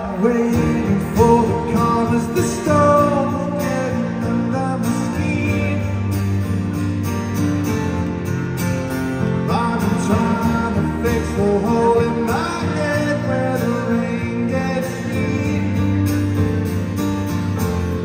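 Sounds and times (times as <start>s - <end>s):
man singing: 0.0s - 6.2s, 9.4s - 16.4s
strummed acoustic guitar: 0.0s - 18.0s.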